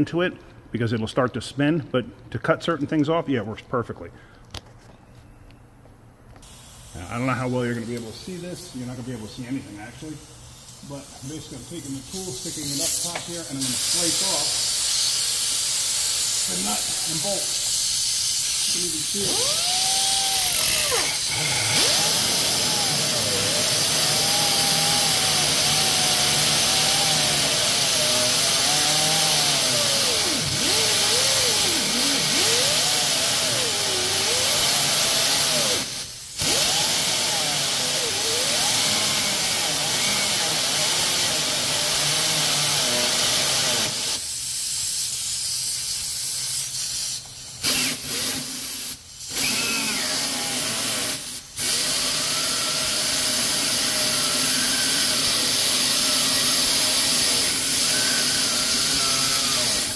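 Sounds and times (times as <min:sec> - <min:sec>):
steady air hiss: 0:06.4 - 0:36.4, 0:43.8 - 0:49.5
air grinder whining: 0:06.5 - 0:45.2, 0:45.8 - 0:59.9.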